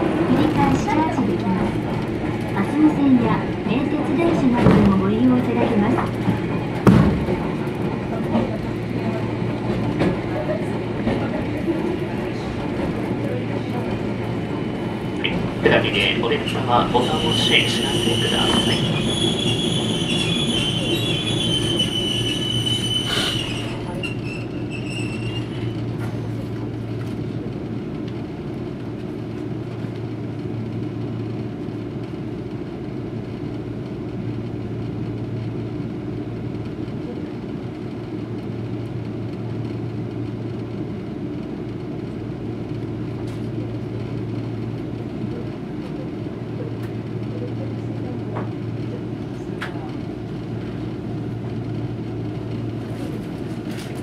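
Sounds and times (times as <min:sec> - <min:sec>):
tram low hum: 0:00.0 - 0:54.0
tram wheels squealing on rails: 0:15.3 - 0:26.4.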